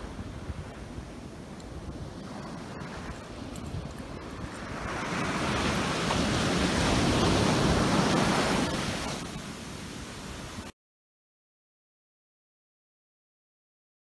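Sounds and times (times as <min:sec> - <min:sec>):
waves breaking on beach: 0:00.0 - 0:10.7
wind rumble on microphone: 0:00.0 - 0:10.7.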